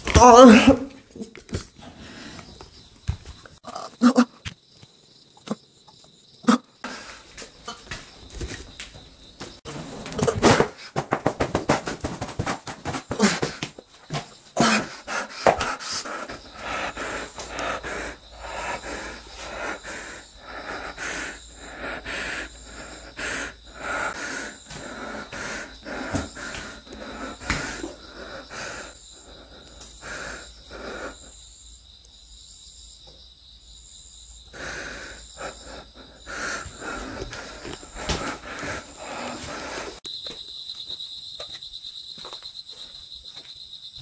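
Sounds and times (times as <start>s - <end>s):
person breathing hard: 1.8s - 2.6s, 6.8s - 7.5s, 14.6s - 31.4s, 34.5s - 40.1s
rustles and knocks of movement: 7.4s - 14.6s.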